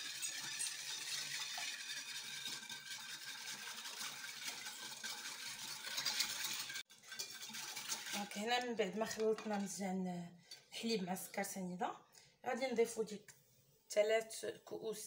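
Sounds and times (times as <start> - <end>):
whisk swishing liquid in bowl: 0.0 - 9.8.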